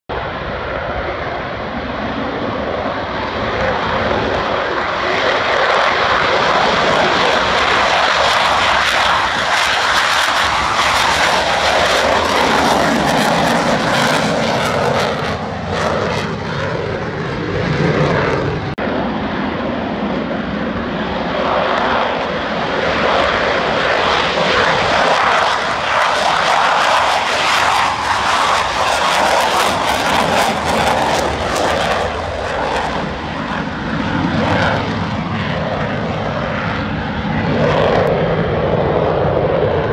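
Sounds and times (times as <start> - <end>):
jet engines roaring: 0.1 - 39.9.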